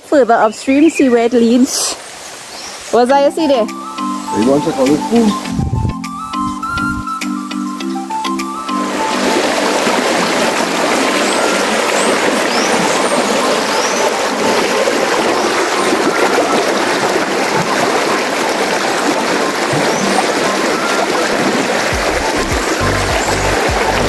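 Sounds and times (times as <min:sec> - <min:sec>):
river rushing over rocks: 0:08.5 - 0:24.0.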